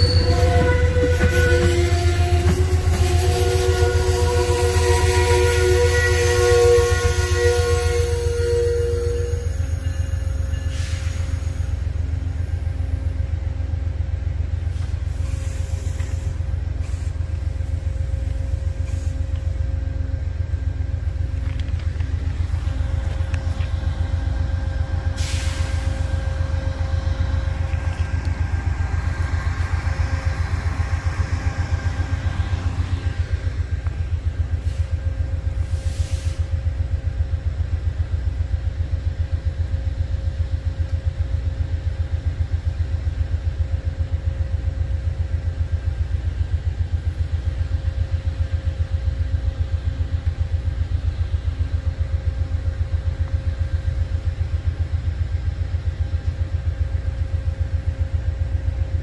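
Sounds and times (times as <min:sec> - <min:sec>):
short sharp hiss: 0:25.2 - 0:26.0.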